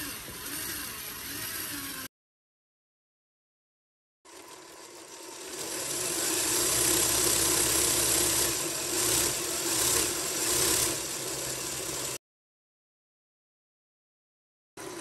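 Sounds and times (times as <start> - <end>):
electric motor whirring: 0.0 - 2.1, 4.3 - 12.2.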